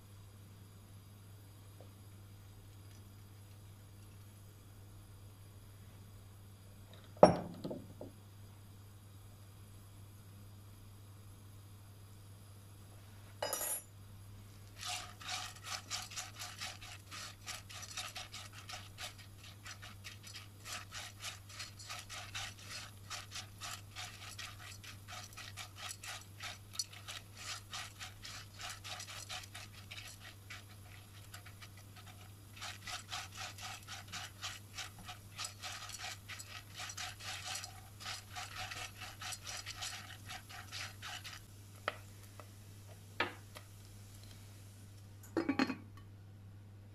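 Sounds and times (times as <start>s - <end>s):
kernels rattling in pot: 14.8s - 41.4s.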